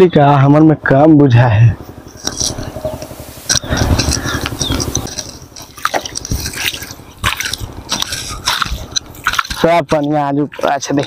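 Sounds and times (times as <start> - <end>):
muddy water splashing and dripping: 4.3 - 9.6.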